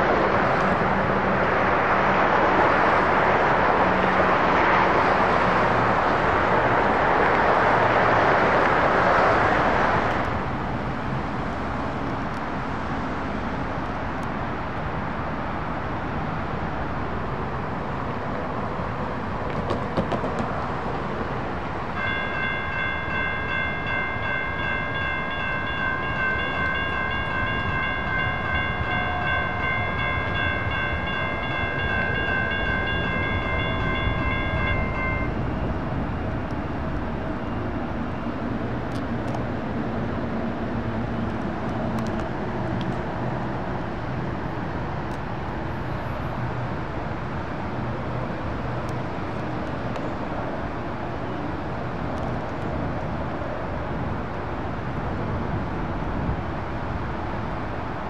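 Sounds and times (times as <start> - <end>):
light-rail train passing: 0.0 - 58.0.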